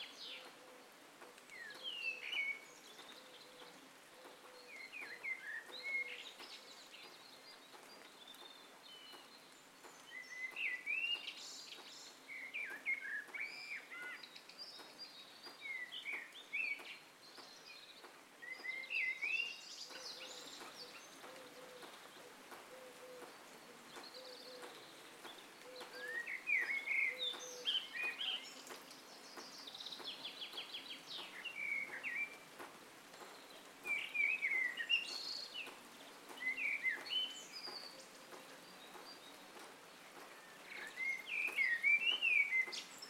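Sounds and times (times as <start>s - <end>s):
steady background hiss: 0.0s - 43.0s
bird whistled calls: 25.7s - 28.5s.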